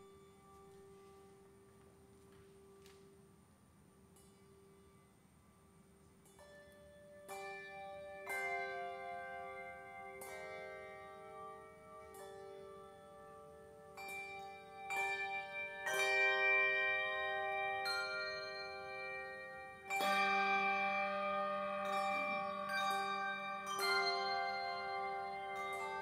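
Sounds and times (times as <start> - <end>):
handbell chords ringing: 14.0 - 26.0.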